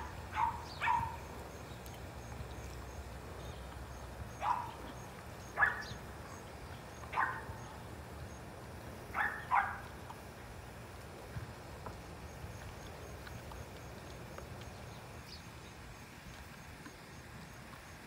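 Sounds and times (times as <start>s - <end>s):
dog barking in high yips: 0.3s - 1.2s, 4.4s - 4.8s, 5.6s - 5.9s, 7.1s - 7.5s, 9.2s - 9.8s.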